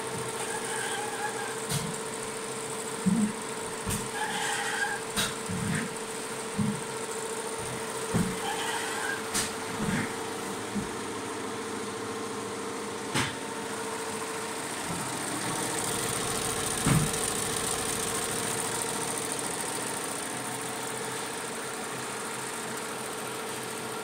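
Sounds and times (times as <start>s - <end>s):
embroidery machine stitching: 0.0s - 6.2s, 14.9s - 21.4s.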